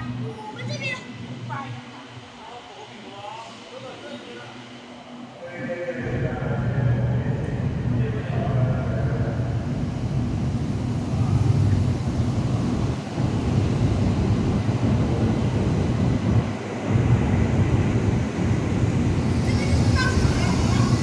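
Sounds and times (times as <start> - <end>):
train wheels rumbling: 6.0 - 21.0
wind buffeting microphone: 7.2 - 21.0.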